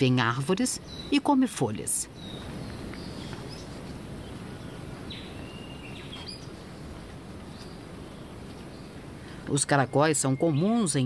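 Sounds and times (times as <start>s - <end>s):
low background hiss: 0.0s - 11.0s
short bird calls: 2.2s - 6.9s.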